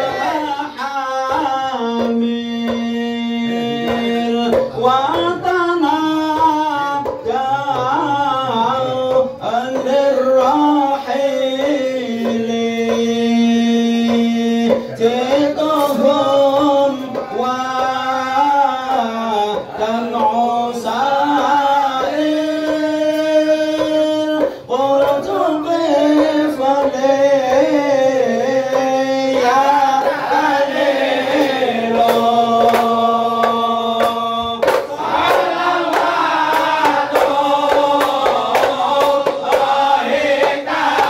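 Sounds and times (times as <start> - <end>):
men singing devotional song: 0.0 - 41.0.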